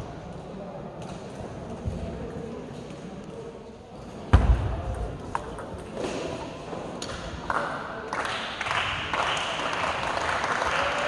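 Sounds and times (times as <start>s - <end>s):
spectators applauding: 7.5s - 11.0s.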